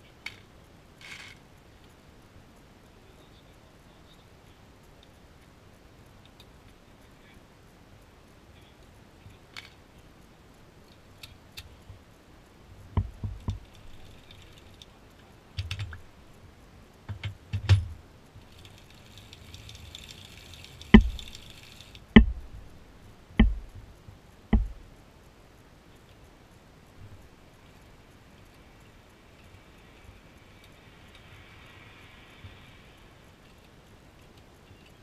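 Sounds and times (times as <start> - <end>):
metal machine parts clicking: 13.2 - 14.9, 17.2 - 22.6
sharp knocks on metal: 17.1 - 18.0, 21.0 - 21.2, 22.2 - 22.5, 23.4 - 23.8, 24.6 - 24.8.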